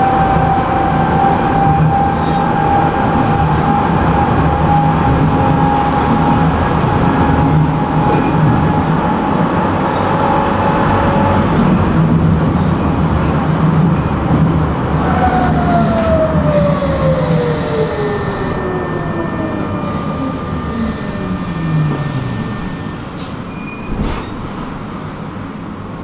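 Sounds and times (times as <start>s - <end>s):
tram rumbling on rails: 0.0s - 26.0s
electric drive whine: 16.6s - 25.1s.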